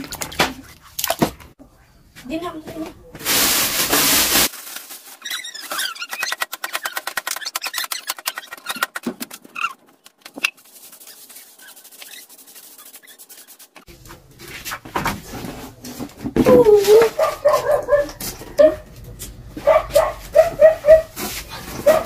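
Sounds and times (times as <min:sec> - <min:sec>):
broom sweeping: 0:03.2 - 0:05.9, 0:10.4 - 0:16.1, 0:16.7 - 0:18.2, 0:19.6 - 0:22.0
plastic bag crackling: 0:03.2 - 0:13.9
high squeaks: 0:05.2 - 0:13.9.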